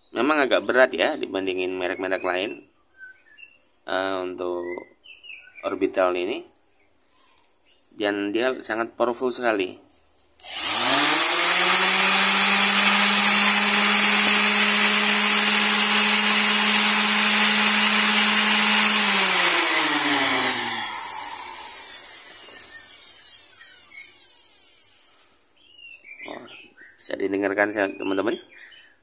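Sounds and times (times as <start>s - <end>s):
motor winding down whine: 10.4s - 25.2s
orbital sander running: 10.4s - 25.3s.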